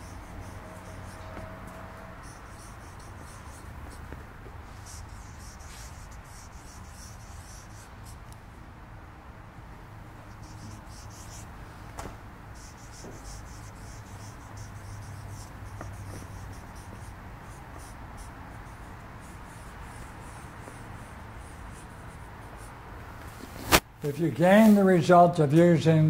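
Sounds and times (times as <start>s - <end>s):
marker pen squeaking on paper: 0.0s - 8.2s, 10.3s - 11.5s, 12.6s - 22.7s
steady low hum: 0.0s - 23.8s.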